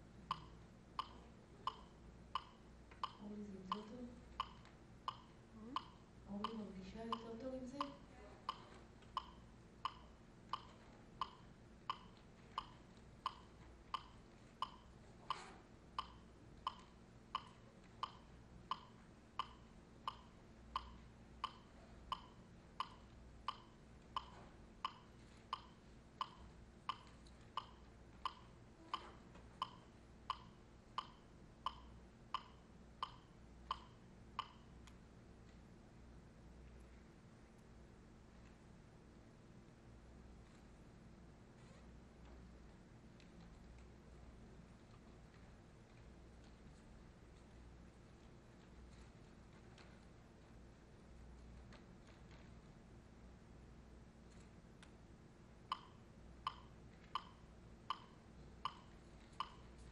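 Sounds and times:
steady percussive tick: 0.0s - 35.6s, 55.6s - 59.9s.

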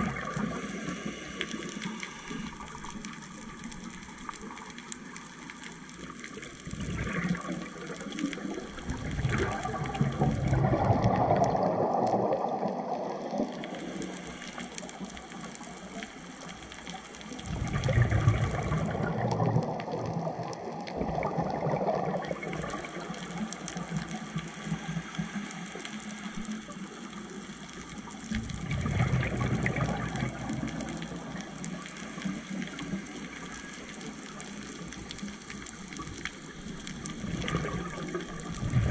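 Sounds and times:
scuba regulator bubbly exhalations: 0.0s - 4.3s, 6.3s - 14.9s, 17.3s - 24.4s, 28.3s - 33.8s, 35.8s - 38.9s.

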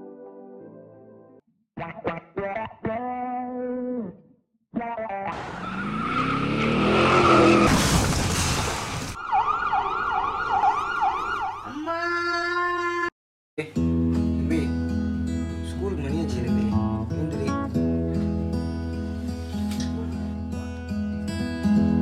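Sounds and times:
emergency vehicle siren whooping: 9.2s - 11.7s.

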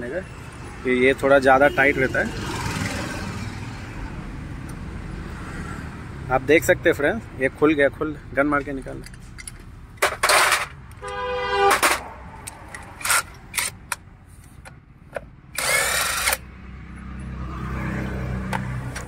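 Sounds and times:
impact wrench bursts: 12.8s - 14.0s, 15.5s - 16.5s.

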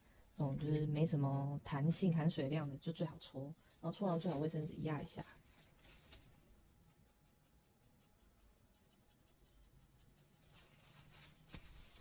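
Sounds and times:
brush scrubbing on paper: 4.0s - 12.0s.

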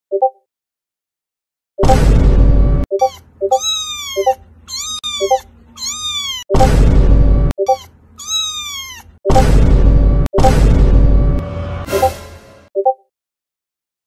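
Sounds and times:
loud bassy noise blast: 1.8s - 2.9s, 6.5s - 7.5s, 9.3s - 12.7s
cat meowing: 3.0s - 6.5s, 7.6s - 9.2s.

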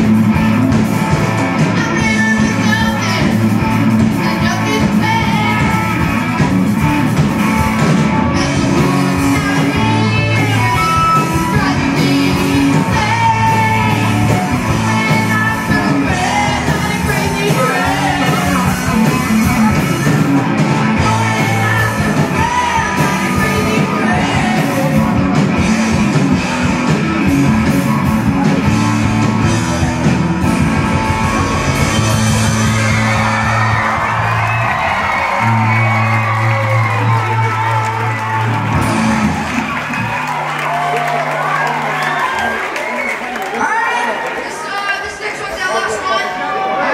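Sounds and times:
electric guitars: 0.0s - 44.4s
drums: 0.0s - 46.4s
bass: 0.0s - 46.9s
person singing: 8.3s - 20.3s, 21.0s - 25.4s.

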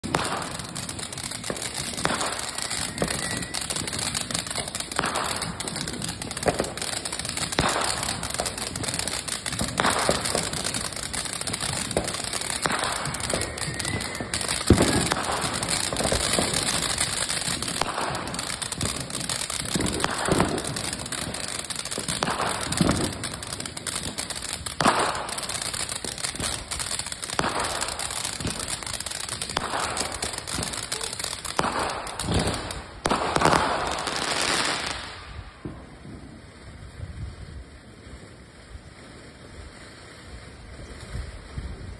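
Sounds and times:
firework crackling and popping: 0.0s - 41.9s
firework hissing: 0.0s - 41.9s.

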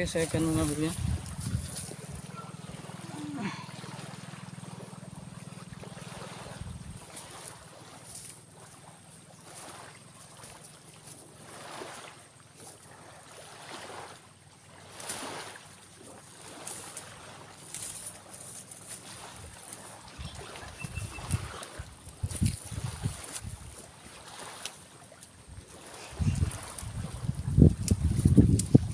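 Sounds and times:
digging scraping in sand: 0.0s - 3.7s
low steady hum: 0.0s - 9.2s.

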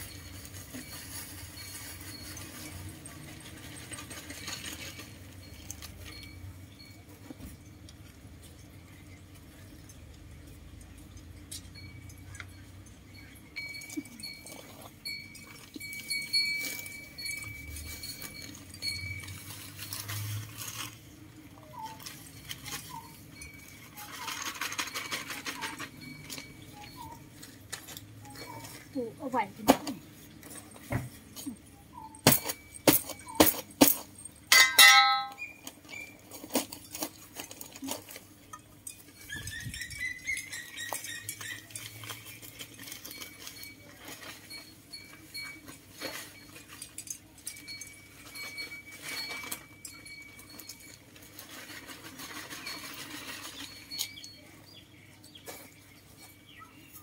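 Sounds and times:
metal shovel knocking on ground: 32.3s - 35.4s.

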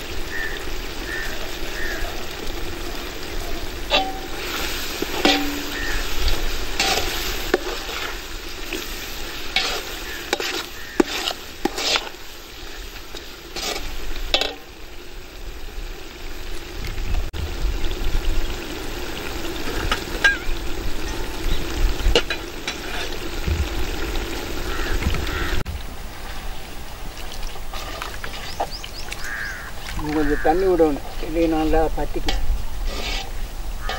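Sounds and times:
food sizzling in oil: 0.0s - 33.9s
metal ladle scraping metal pot: 3.9s - 12.2s, 13.2s - 14.6s, 22.1s - 23.3s, 32.1s - 33.9s.

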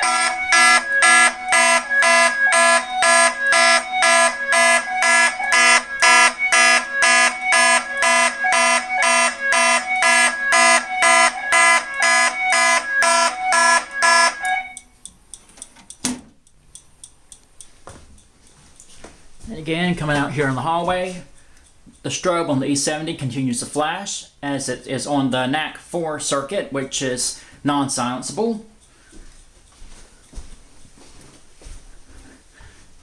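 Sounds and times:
pulsing fire alarm: 0.0s - 15.0s.

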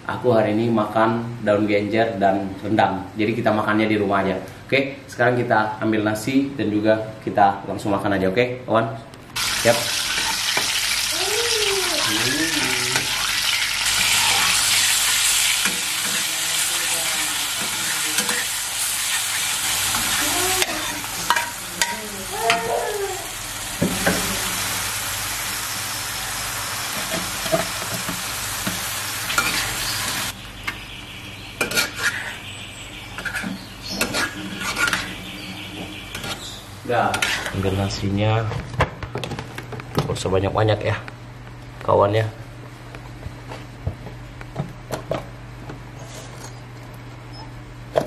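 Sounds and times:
food sizzling in hot oil: 9.4s - 30.4s
spatula scraping a pan: 31.6s - 32.4s, 33.1s - 35.4s, 37.1s - 37.6s.

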